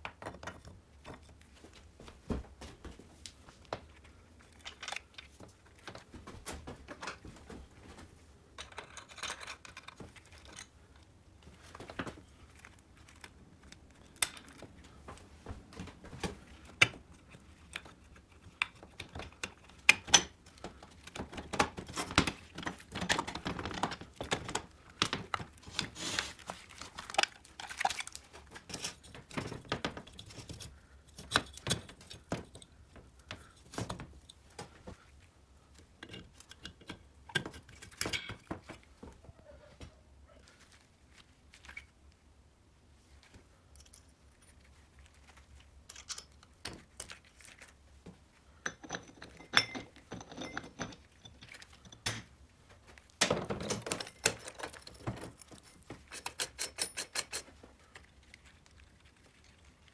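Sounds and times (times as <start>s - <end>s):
metal parts clicking and tapping: 8.6s - 10.7s, 45.9s - 47.2s, 48.6s - 52.3s, 53.3s - 58.1s
scraping and rustling: 20.5s - 36.6s.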